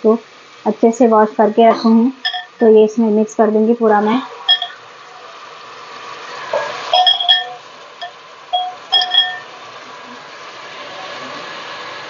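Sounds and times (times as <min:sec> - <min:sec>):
glass bowl clinking on metal: 0:02.2 - 0:02.6, 0:04.5 - 0:04.8, 0:06.9 - 0:09.5
meat sizzling in oil: 0:04.4 - 0:12.0.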